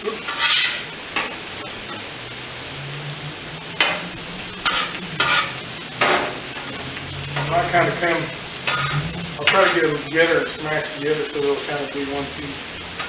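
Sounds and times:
food sizzling on griddle: 0:00.0 - 0:13.0
metal spatula scraping and tapping: 0:03.8 - 0:06.7, 0:08.6 - 0:09.8.

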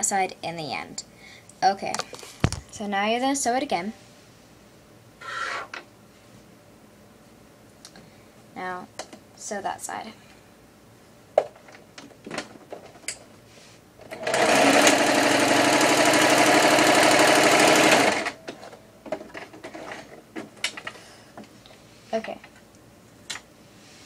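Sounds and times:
sewing machine stitching: 0:14.0 - 0:18.4.

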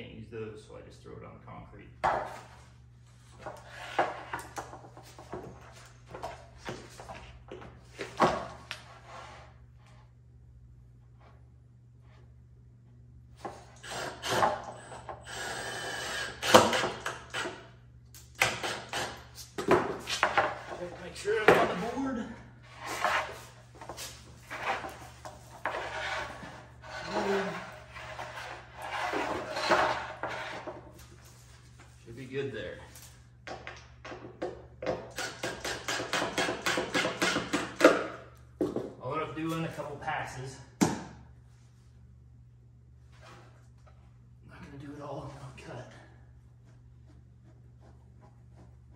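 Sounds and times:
cordless drill driving a screw: 0:13.8 - 0:17.5
wood scraping: 0:18.4 - 0:32.0.

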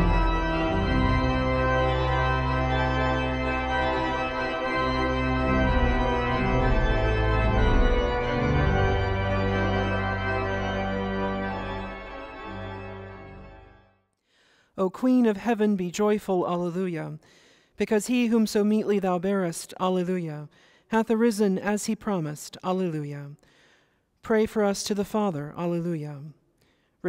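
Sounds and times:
church organ chords: 0:00.0 - 0:14.0.

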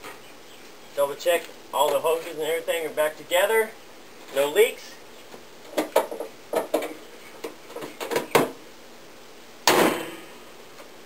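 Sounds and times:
car hood thudding shut: 0:09.6 - 0:10.2.

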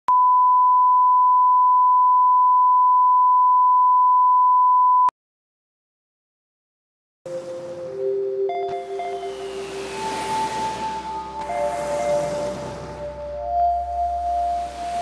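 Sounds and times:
steady high test tone: 0:07.3 - 0:15.0.

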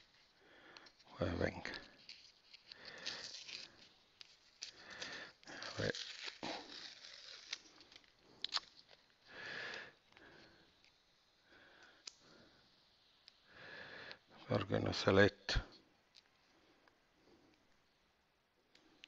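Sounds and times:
paper rustling and crackling: 0:01.5 - 0:09.0.

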